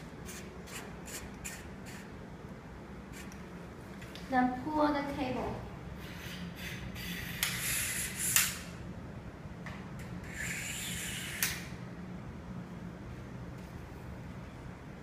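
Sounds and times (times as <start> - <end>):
pole sections sliding hiss: 5.9 - 8.8, 10.2 - 11.7
sharp click: 11.3 - 11.7.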